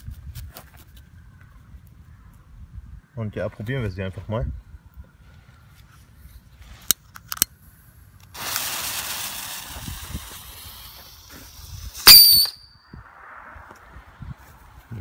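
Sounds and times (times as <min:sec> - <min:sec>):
rocket fuse and motor hissing: 0:08.3 - 0:12.6
loud high rocket whistle: 0:11.4 - 0:13.5.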